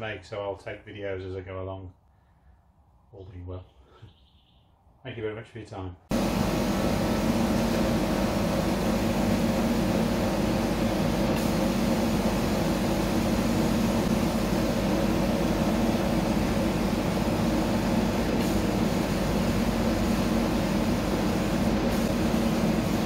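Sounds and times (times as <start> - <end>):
exhaust blower and chiller hum: 6.1 - 23.0.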